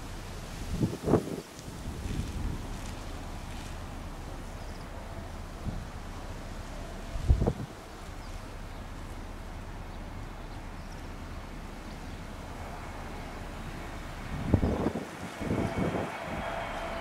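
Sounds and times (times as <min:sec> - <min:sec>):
wind rumble on microphone: 0:00.0 - 0:17.0
distant jet airliner: 0:10.6 - 0:17.0.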